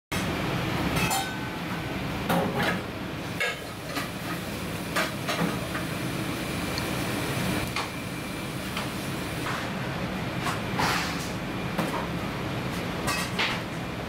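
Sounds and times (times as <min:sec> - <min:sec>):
kitchen background noise: 0:00.2 - 0:13.8
dishes clinking: 0:01.0 - 0:01.5.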